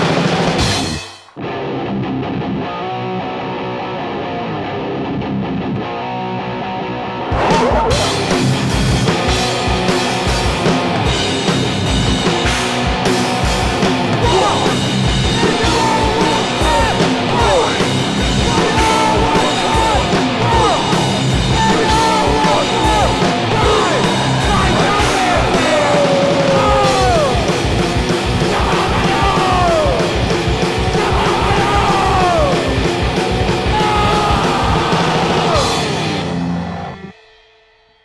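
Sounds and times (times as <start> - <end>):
bass guitar: 0.0 - 37.2
distorted electric guitars: 0.0 - 37.6
drums: 0.0 - 38.0
yelled vocals: 7.1 - 8.7, 13.6 - 36.4
guitar ringing: 13.9 - 28.3.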